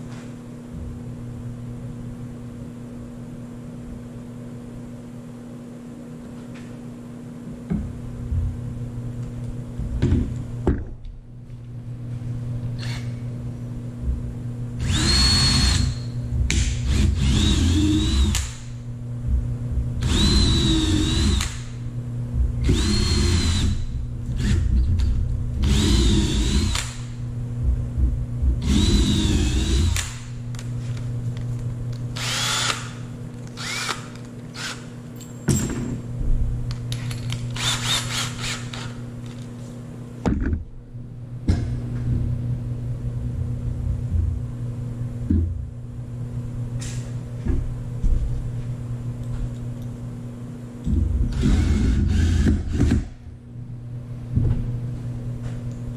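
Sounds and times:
cordless drill drilling into wood: 14.8s - 16.0s, 16.9s - 18.5s, 20.0s - 21.6s, 22.7s - 23.8s, 32.2s - 33.0s, 33.6s - 34.8s.

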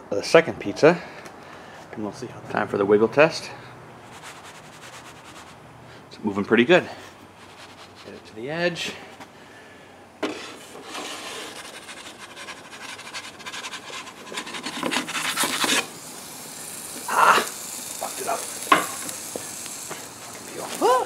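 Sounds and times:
wooden peel scraping on stone: 10.2s - 15.9s.

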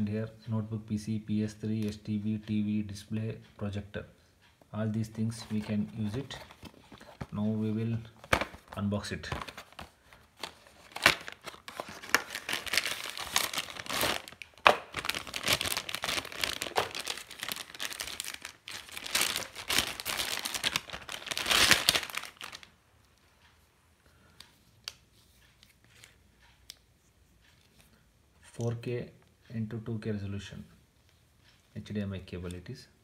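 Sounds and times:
plastic bag crinkling: 8.5s - 22.7s.

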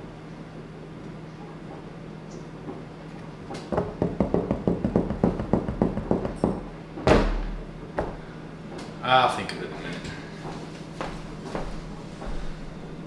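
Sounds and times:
rapid tapping on countertop: 3.7s - 6.6s.

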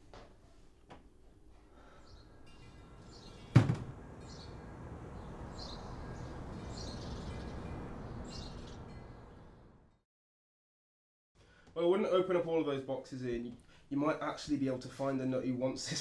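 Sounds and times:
small birds chirping: 1.8s - 9.6s
sharp thump: 3.5s - 4.0s.

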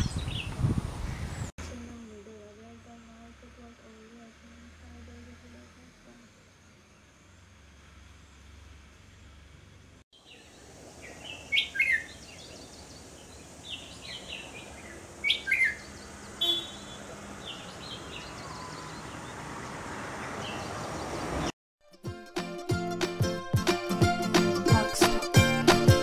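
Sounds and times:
steady hiss: 10.2s - 15.3s
soft bird chirps: 10.2s - 21.5s.

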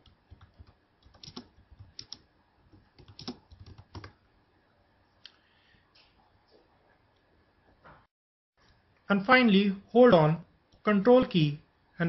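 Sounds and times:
keyboard keys clicking: 0.0s - 4.2s.

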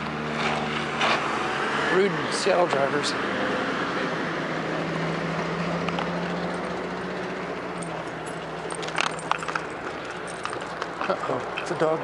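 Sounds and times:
car engine humming: 0.0s - 12.0s
light metallic clicks and jingles: 5.9s - 6.9s, 7.6s - 12.0s.

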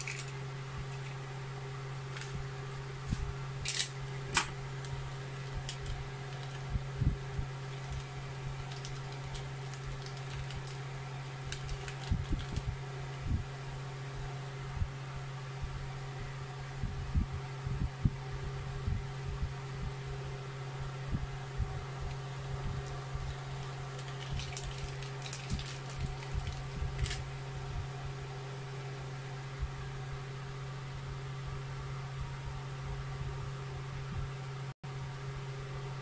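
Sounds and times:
plastic bag crinkling: 0.0s - 1.2s, 2.1s - 6.7s, 7.6s - 12.7s, 22.1s - 27.3s
steady low hum: 0.0s - 36.0s.

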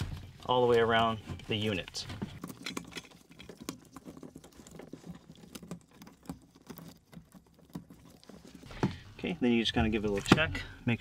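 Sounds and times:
small irregular clicks and taps: 1.8s - 9.0s.

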